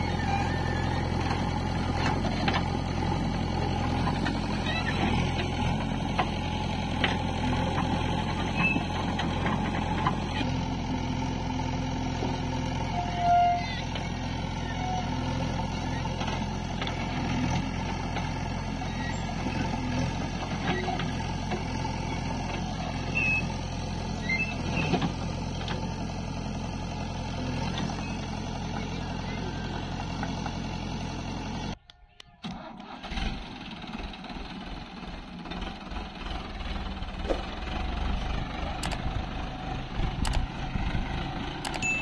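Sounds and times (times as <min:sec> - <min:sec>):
diesel engines running: 0:00.0 - 0:42.0
brief beep: 0:41.8 - 0:42.0.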